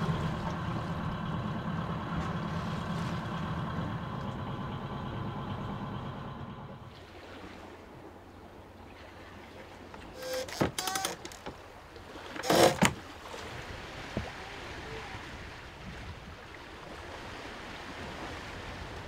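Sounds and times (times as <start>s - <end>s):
diesel engine humming: 0.0s - 7.0s.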